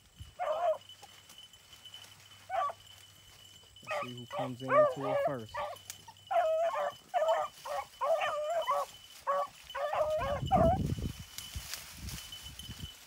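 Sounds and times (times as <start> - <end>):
hounds baying: 0.2 - 10.9.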